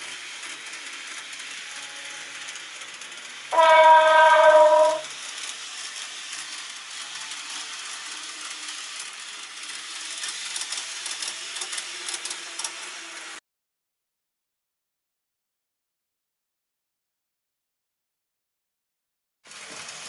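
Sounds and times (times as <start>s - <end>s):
model train whirring on track: 0.0s - 13.4s, 19.5s - 20.0s
loud horn-like tone: 3.6s - 5.1s.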